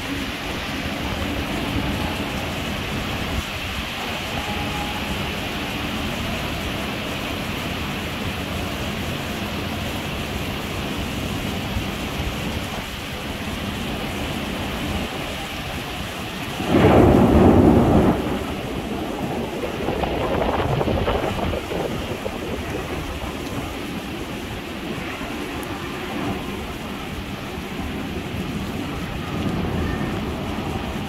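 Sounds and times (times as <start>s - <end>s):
heavy rain: 0.0s - 31.0s.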